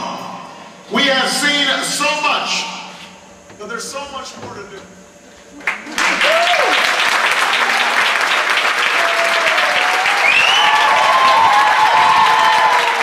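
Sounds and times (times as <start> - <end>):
audience clapping: 5.6 - 13.0
voices cheering and whooping: 5.8 - 8.1, 8.8 - 13.0.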